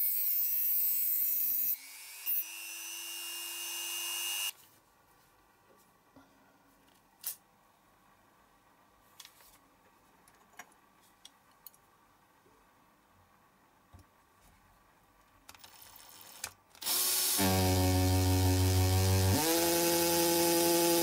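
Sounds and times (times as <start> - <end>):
cordless drill running: 1.7 - 4.5, 16.8 - 21.0.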